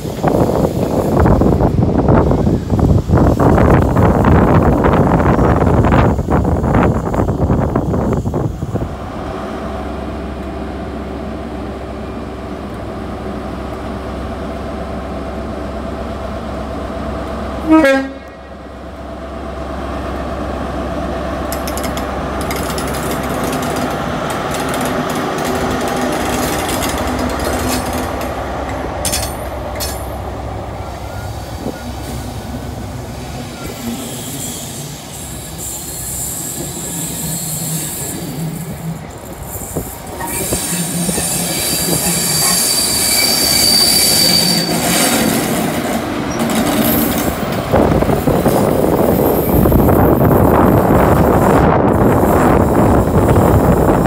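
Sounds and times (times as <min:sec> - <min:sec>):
diesel train engine running: 0:00.0 - 0:54.0
train coaches rolling past: 0:00.0 - 0:54.0
high wheel squeal: 0:33.4 - 0:45.4.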